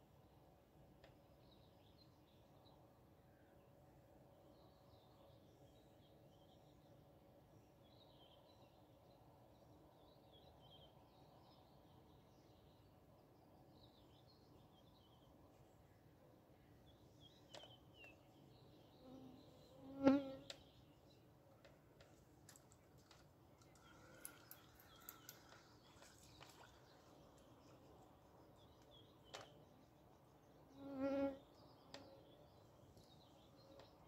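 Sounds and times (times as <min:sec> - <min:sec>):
flying insect buzzing past: 0:19.2 - 0:20.5.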